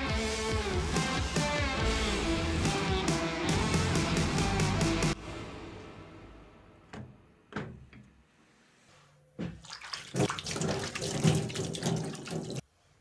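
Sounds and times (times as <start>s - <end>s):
water splashing in a tub: 9.6s - 12.6s.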